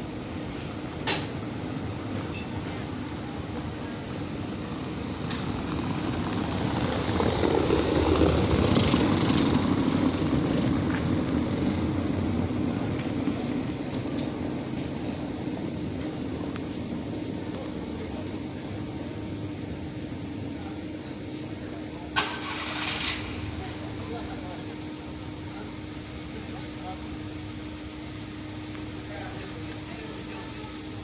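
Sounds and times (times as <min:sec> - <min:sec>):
street traffic rumble: 0:00.0 - 0:31.0
vehicle passing: 0:04.6 - 0:13.7.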